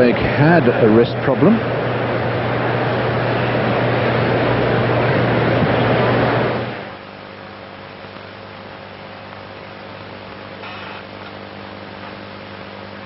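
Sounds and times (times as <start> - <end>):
low electrical hum: 0.0 - 13.0
faint hiss: 6.8 - 13.0.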